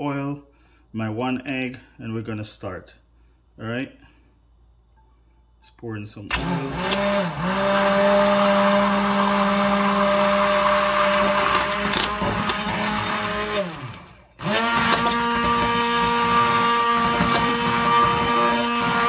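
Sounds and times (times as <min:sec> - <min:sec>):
stick blender motor running: 0:06.3 - 0:19.0.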